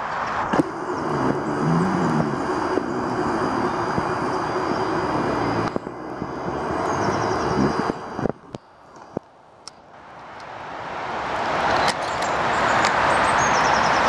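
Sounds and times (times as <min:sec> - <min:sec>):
motor engine droning: 0:00.0 - 0:09.3
steady hiss: 0:00.0 - 0:14.0.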